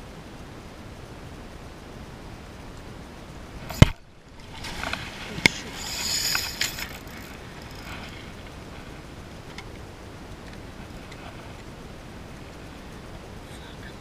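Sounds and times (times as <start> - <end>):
hiss of wind and water: 0.0 - 14.0
water splashing against kayak: 3.6 - 8.8.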